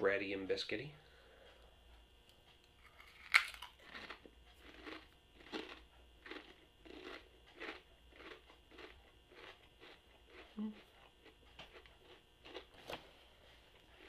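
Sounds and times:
crunchy chewing: 2.6s - 12.9s, 13.7s - 14.0s
potato chip crunch: 2.8s - 12.8s.

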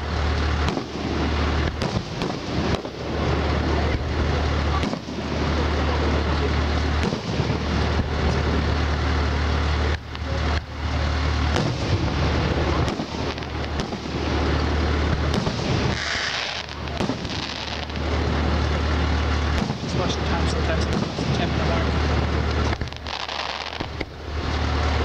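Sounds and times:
firework shells bursting: 0.0s - 25.0s
low rumble: 0.0s - 25.0s
hissing burst: 10.9s - 24.1s.

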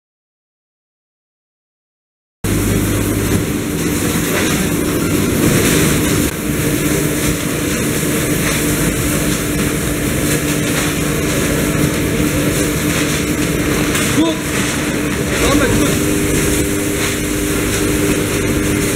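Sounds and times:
machinery mechanical hum: 2.4s - 18.9s
even rushing noise: 15.1s - 18.9s.

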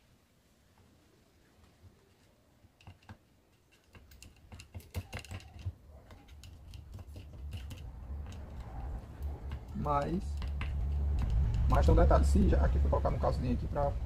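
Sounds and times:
screwdriver clicking and scraping: 2.0s - 12.0s.

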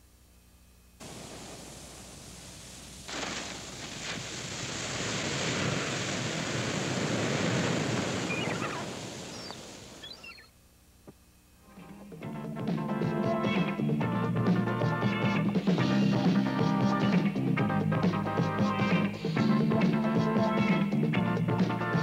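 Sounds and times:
rushing noise: 1.0s - 10.0s
faint high gliding whistles: 8.2s - 10.5s.

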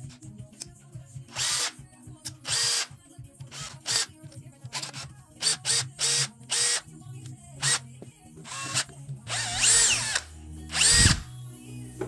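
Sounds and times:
cordless drill motor whirring: 1.3s - 1.7s, 2.4s - 2.9s, 4.7s - 6.8s, 8.5s - 11.3s.

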